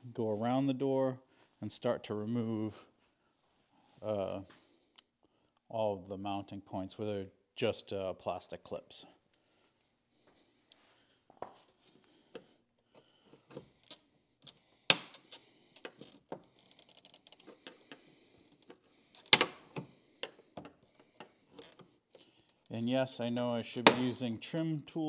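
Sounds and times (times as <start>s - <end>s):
plastic clips popping loose: 23.8s - 24.2s.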